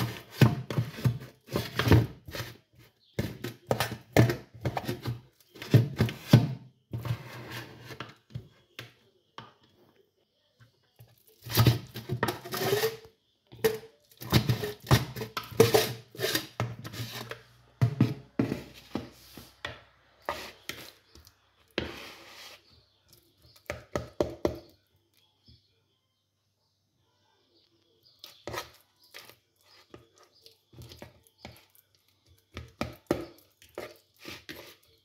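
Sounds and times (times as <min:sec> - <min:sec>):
fork mashing bananas: 0:00.0 - 0:07.2, 0:11.1 - 0:24.7, 0:28.0 - 0:35.0.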